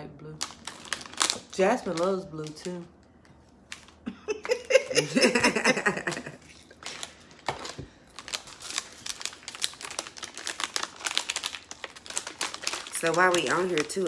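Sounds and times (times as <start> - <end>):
person laughing: 4.0 - 6.6.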